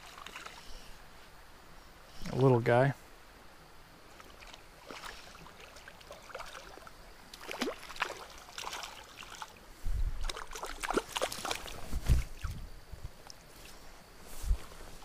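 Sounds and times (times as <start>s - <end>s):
fish splashing at water surface: 4.2s - 9.5s.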